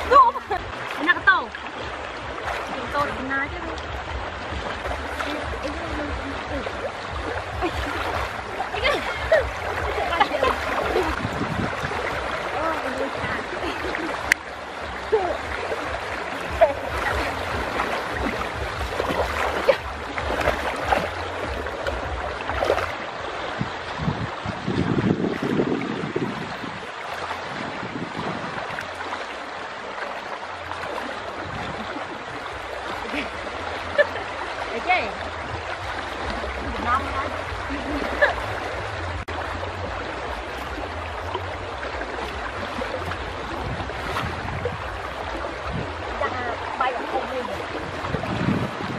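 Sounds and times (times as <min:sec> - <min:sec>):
low rumble: 0:00.0 - 0:29.1
rushing water: 0:00.0 - 0:48.9
water splashing from wading: 0:00.0 - 0:48.9
wind on microphone: 0:01.8 - 0:34.2, 0:35.1 - 0:48.9.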